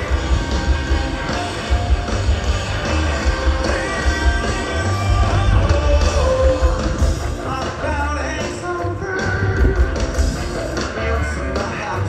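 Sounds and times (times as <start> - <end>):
heavy bass: 0.0 - 12.0
rock band playing live: 0.0 - 12.0
person singing: 3.6 - 10.0.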